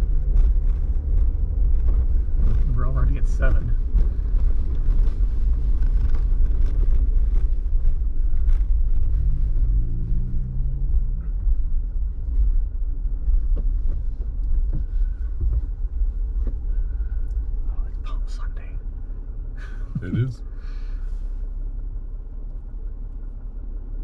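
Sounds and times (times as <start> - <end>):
car engine and road rumble: 0.0 - 24.0.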